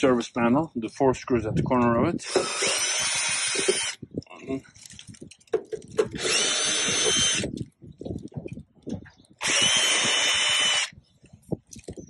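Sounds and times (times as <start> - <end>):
cordless drill whining: 2.2 - 4.0, 6.0 - 7.6, 9.4 - 11.0
handling clicks and knocks: 4.9 - 6.2.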